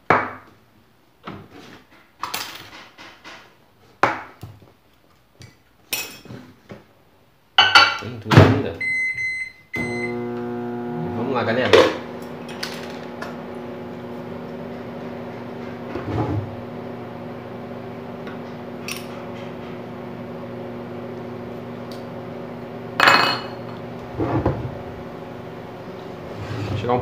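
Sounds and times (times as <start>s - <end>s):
microwave oven humming: 9.8s - 26.4s.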